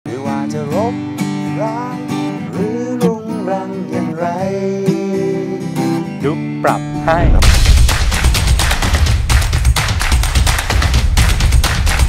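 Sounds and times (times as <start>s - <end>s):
man singing: 0.1s - 7.4s
acoustic guitar strumming: 0.1s - 8.8s.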